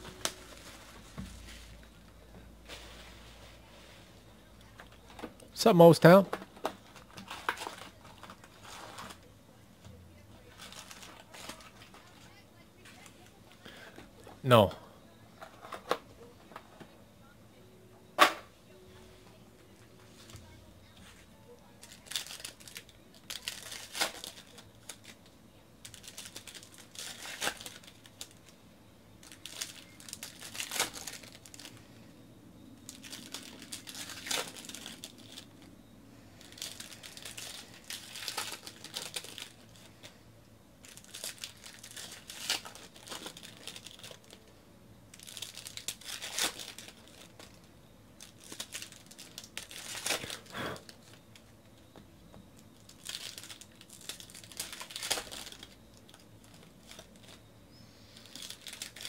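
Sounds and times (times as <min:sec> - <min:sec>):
foil wrappers crinkling and tearing: 0:00.0 - 0:02.0, 0:04.7 - 0:09.3, 0:10.4 - 0:13.9, 0:20.0 - 0:28.5, 0:29.2 - 0:32.0, 0:32.8 - 0:40.2, 0:40.8 - 0:44.5, 0:45.1 - 0:47.6, 0:48.2 - 0:51.5, 0:52.6 - 0:59.0.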